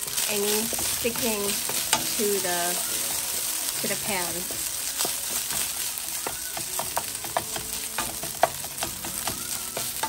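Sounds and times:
rice sizzling in a pan: 0.0 - 10.0
utensil knocking against pan: 6.2 - 10.0.

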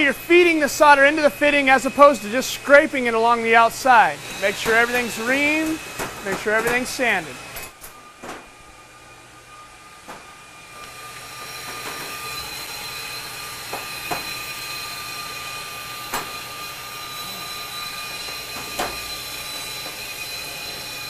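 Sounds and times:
acetylene torch flame hissing: 0.0 - 7.6.

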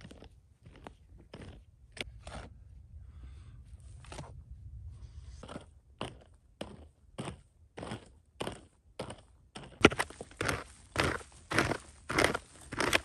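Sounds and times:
steady low rumble: 1.7 - 7.7
crunches and scrapes: 5.0 - 13.0.

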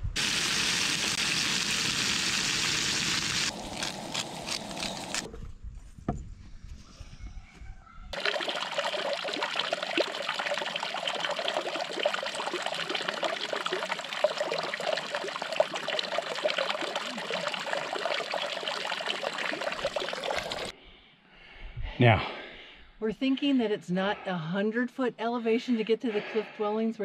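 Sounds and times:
water trickling and splashing: 0.2 - 5.3, 8.2 - 20.7.

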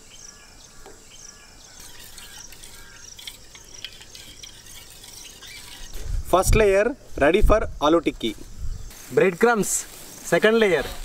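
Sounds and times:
small birds chirping: 0.0 - 6.2, 7.7 - 10.8
insects calling: 0.0 - 11.0
batter being whisked: 1.8 - 6.0.

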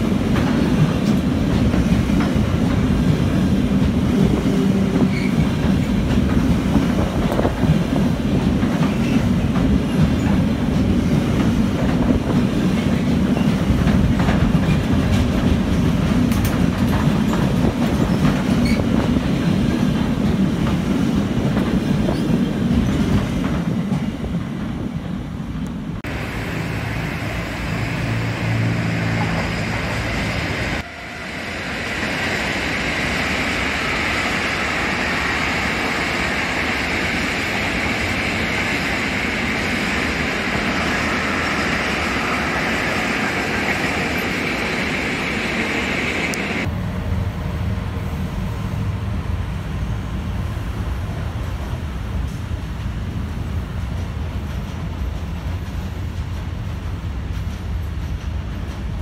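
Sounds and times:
freight train wheels clattering: 0.0 - 24.8, 52.1 - 59.0
distant freight train hiss: 0.0 - 59.0.

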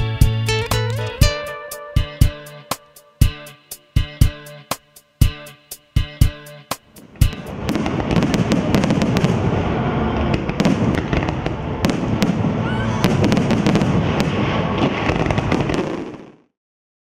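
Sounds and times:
sharp firework cracks: 6.8 - 16.5
low rumble of firework bursts: 6.9 - 16.5.

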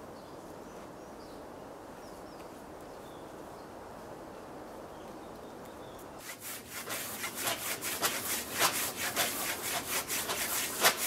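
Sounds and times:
low rushing hiss: 6.2 - 11.0.

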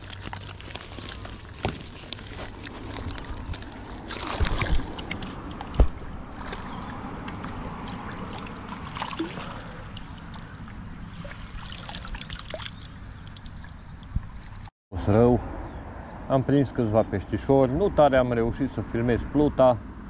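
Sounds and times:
net splashing in water: 3.1 - 14.6.

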